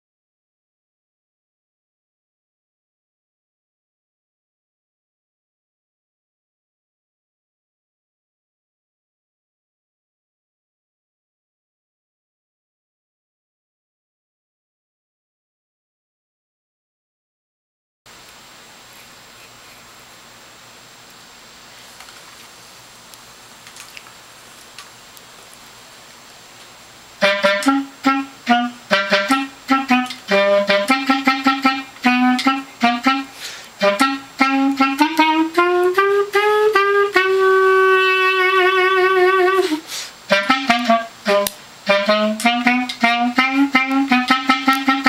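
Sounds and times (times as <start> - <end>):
faint hiss: 18.1 - 45.0
solo clarinet: 27.2 - 45.0.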